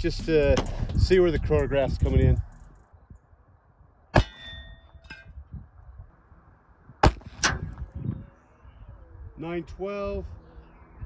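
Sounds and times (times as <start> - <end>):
bullet ringing on metal pipe: 4.2 - 5.3
pistol shots: 7.0 - 7.6.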